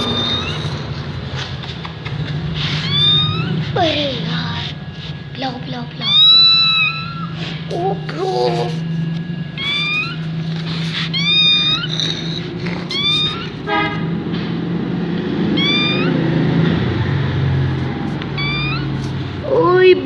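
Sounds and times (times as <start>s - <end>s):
kitten mewing: 0.0s - 3.8s, 6.0s - 14.0s, 15.5s - 16.5s, 17.8s - 19.2s
steady low hum: 0.0s - 20.0s.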